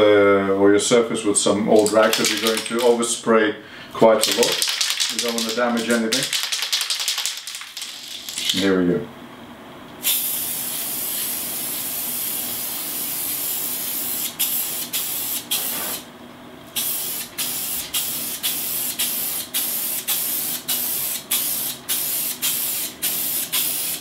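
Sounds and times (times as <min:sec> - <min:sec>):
aerosol can spraying: 0:10.0 - 0:16.0, 0:16.8 - 0:24.0.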